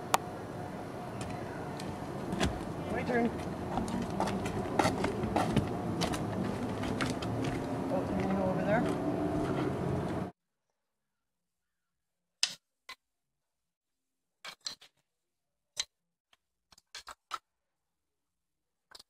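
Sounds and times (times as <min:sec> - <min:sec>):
wooden toy pieces clacking: 0:16.7 - 0:17.4.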